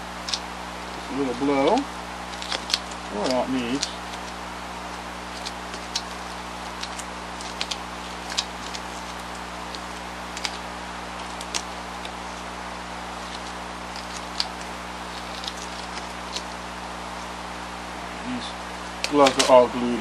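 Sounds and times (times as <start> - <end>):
steady hum and hiss: 0.0 - 20.0
gloves sticking to tacky glue: 0.2 - 17.4, 18.9 - 19.6
small clicks and ticks: 2.3 - 10.6, 11.2 - 12.2.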